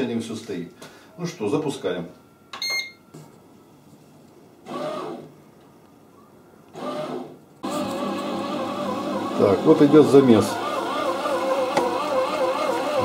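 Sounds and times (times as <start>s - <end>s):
short electronic beep: 2.3s - 3.1s
bread machine kneading motor: 6.7s - 13.0s.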